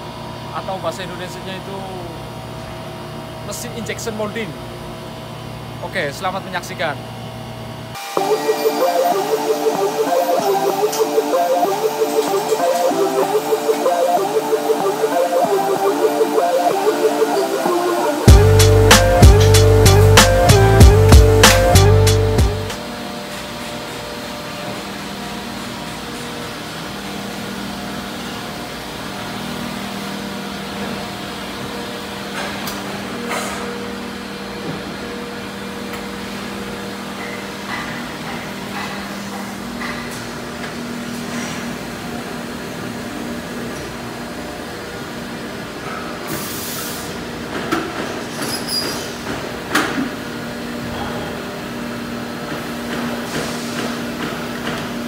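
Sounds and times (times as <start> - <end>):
machine hum: 7.1 - 23.2.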